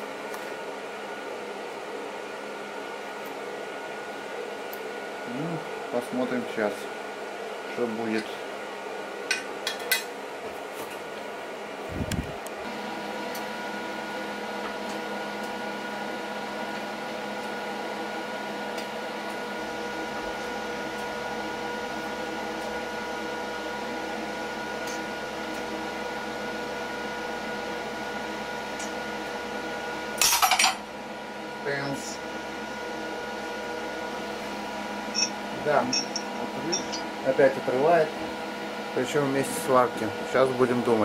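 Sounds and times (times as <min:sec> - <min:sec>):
hydraulic press motor hum: 0:11.8 - 0:16.0.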